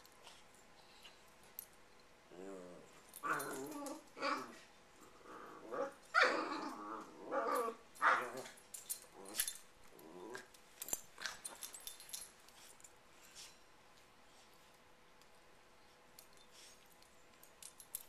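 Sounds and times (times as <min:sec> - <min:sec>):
dogs play-growling and yipping: 0:00.0 - 0:13.7.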